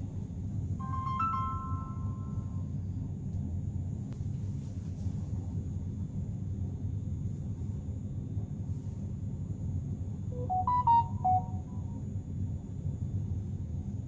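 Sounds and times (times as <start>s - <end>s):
steady low hum: 0.0s - 14.0s
phone electronic chime: 0.8s - 2.5s, 10.4s - 11.9s.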